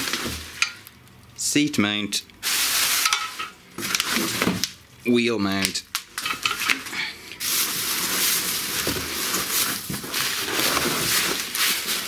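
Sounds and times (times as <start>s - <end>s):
plastic and cardboard rustling: 0.0s - 0.7s, 2.4s - 4.8s, 6.0s - 12.0s.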